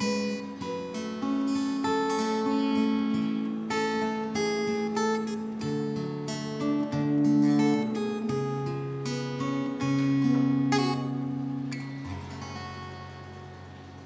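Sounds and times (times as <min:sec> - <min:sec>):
acoustic guitar music: 0:00.0 - 0:14.0.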